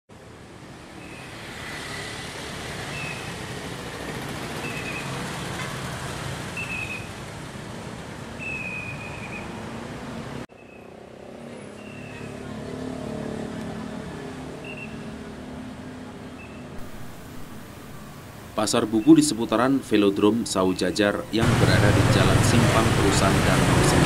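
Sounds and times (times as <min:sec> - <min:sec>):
traffic hum: 0:00.1 - 0:24.0
scooters riding past: 0:00.6 - 0:06.9, 0:10.8 - 0:18.4.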